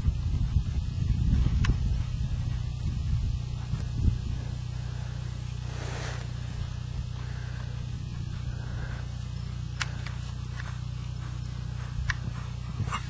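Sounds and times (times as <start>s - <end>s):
horse hoofbeats on sand: 0.0s - 13.0s
low outdoor rumble: 0.0s - 13.0s
sharp clicks: 9.7s - 10.8s.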